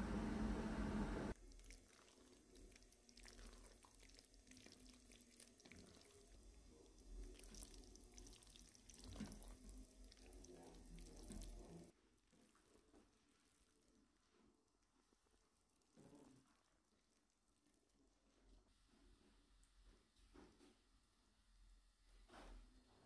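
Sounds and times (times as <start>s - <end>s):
low hum: 0.0s - 1.4s
sauce bubbling and popping: 1.4s - 11.9s.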